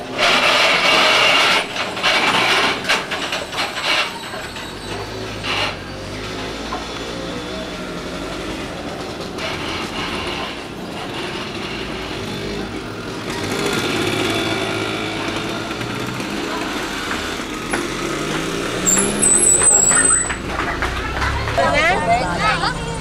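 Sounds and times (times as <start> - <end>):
motorcycle engines running: 0.0 - 23.0
engine note rising: 17.4 - 23.0
high-pitched squeal: 18.8 - 20.5.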